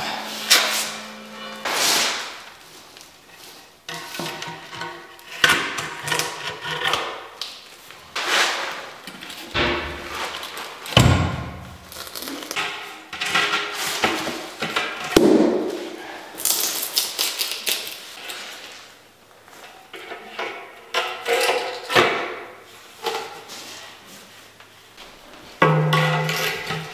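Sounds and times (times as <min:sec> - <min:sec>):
heavy thumps: 0:09.5 - 0:10.3, 0:11.0 - 0:11.9
tiles knocking and scraping: 0:25.6 - 0:26.9.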